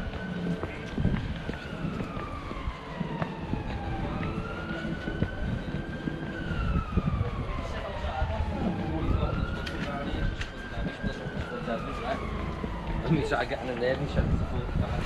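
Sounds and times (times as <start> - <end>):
emergency siren wailing: 0.0 - 15.0
low traffic rumble: 0.0 - 15.0.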